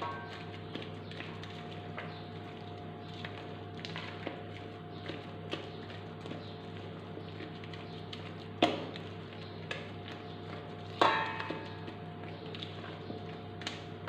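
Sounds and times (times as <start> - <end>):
spatula knocking ringing bowl: 11.0 - 11.7.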